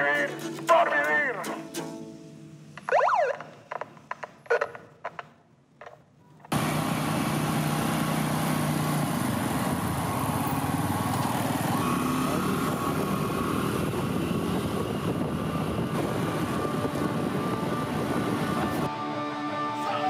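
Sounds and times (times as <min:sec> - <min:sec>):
motorcycle engine running: 0:06.5 - 0:18.9
rushing wind noise: 0:09.5 - 0:18.9.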